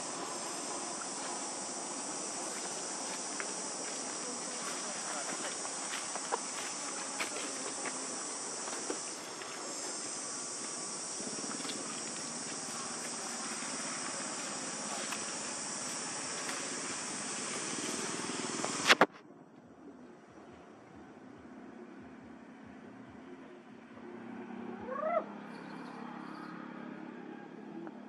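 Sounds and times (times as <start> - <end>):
high-pitched insect chorus: 0.0 - 19.1.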